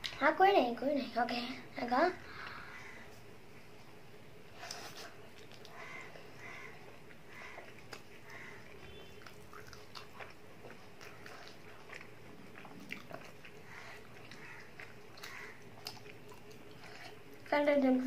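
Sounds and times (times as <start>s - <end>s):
person biting and chewing: 7.1s - 17.3s.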